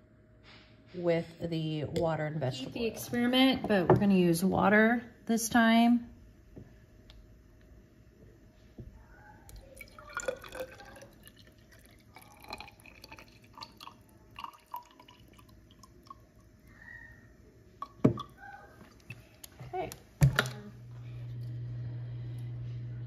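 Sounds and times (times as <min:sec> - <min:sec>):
water trickling into a cylinder: 0:09.5 - 0:19.5.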